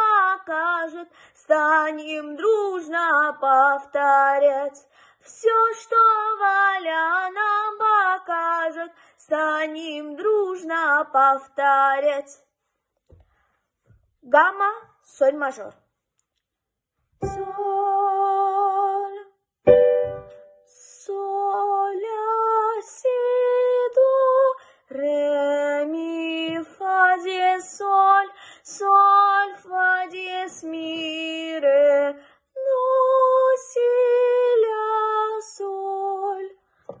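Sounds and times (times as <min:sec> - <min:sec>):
girl singing a scale: 0:17.2 - 0:19.1.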